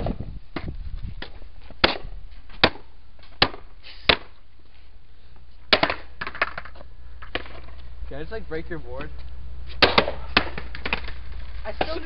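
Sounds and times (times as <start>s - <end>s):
skateboard slammed on concrete: 0.0s - 4.4s, 5.7s - 7.7s, 9.8s - 12.0s.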